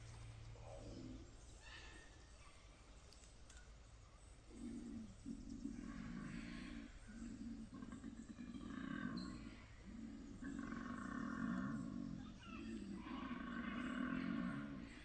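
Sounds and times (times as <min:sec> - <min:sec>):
koala bellowing: 0:04.7 - 0:15.0.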